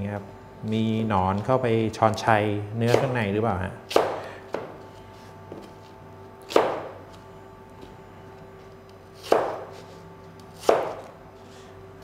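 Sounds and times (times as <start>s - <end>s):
knife chopping apple on board: 2.9s - 3.2s, 3.9s - 4.7s, 6.5s - 7.0s, 9.2s - 9.9s, 10.6s - 11.1s.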